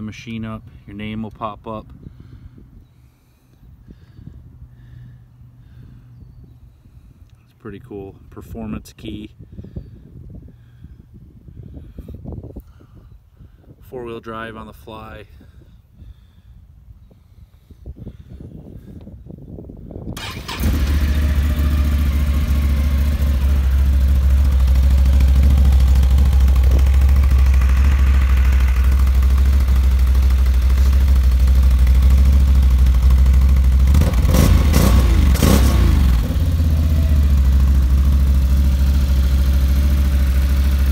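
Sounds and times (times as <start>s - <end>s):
atv engine starting and idling: 20.2s - 40.9s.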